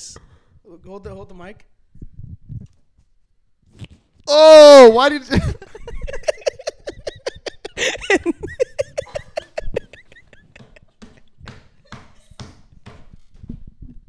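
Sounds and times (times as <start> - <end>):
people laughing hard: 5.3 - 11.2.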